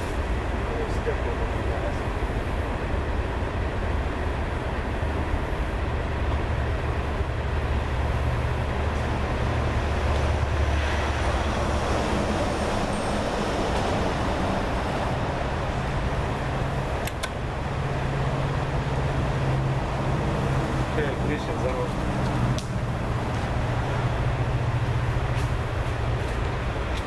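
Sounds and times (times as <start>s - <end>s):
diesel engine running: 0.0s - 27.0s
sharp clicks: 17.0s - 17.4s.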